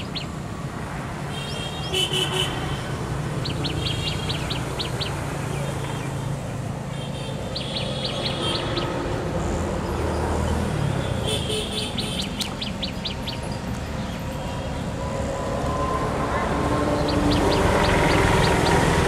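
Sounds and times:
small bird chirping: 0.0 - 0.4, 3.4 - 6.2, 7.4 - 9.0, 11.8 - 14.8.

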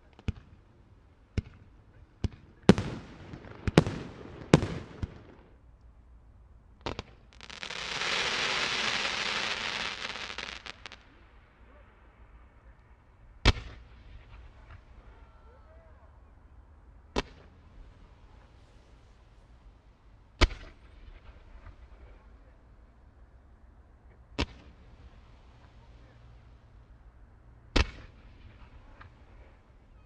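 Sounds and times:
fireworks bangs: 2.2 - 5.6, 6.8 - 11.2
fireworks hissing rush: 6.9 - 11.1.

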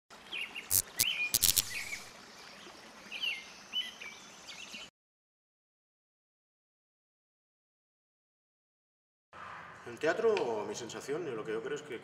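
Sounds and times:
birds chirping: 0.3 - 4.9
sharp clicks: 0.7 - 2.0.

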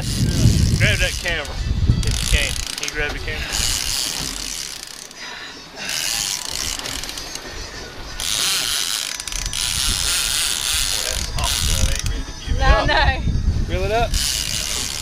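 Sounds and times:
fishing reel ratcheting: 0.0 - 5.2, 5.8 - 7.5, 8.2 - 12.2, 14.1 - 15.0.

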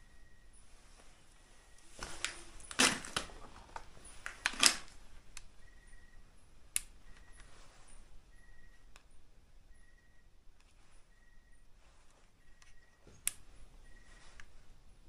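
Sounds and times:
faint short high beep: 9.7 - 10.3.

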